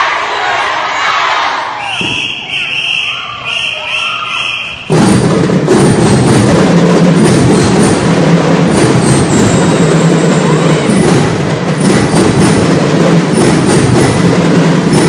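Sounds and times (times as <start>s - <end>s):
drums beating: 1.8s - 15.0s
drum and lyre band playing: 4.8s - 15.0s.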